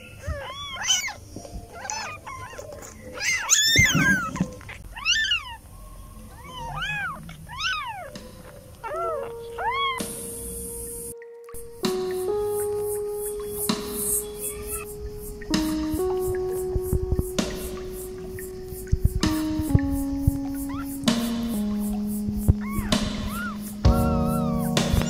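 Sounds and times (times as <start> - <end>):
kittens mewing: 0.0 - 5.7, 6.3 - 10.6, 22.5 - 25.0.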